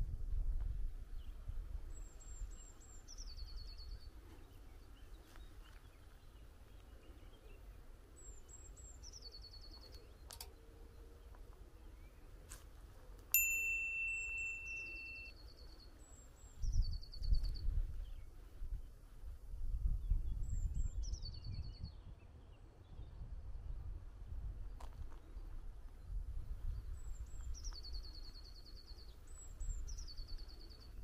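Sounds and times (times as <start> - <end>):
songbird singing with trill: 1.1 - 12.3, 13.3 - 19.0, 19.8 - 23.3, 26.0 - 31.0
clear steady tone: 13.3 - 15.4.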